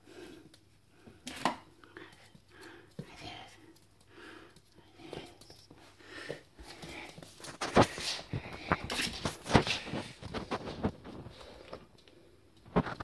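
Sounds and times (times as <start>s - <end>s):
puppy shuffling on floor: 4.9s - 11.9s.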